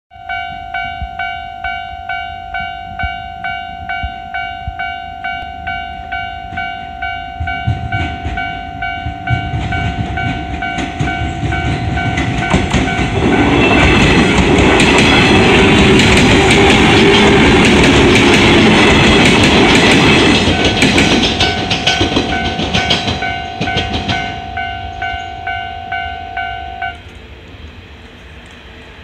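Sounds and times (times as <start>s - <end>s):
level-crossing warning bell: 0.1s - 27.2s
electric train passing: 0.1s - 29.0s
train wheels clattering: 6.4s - 28.6s.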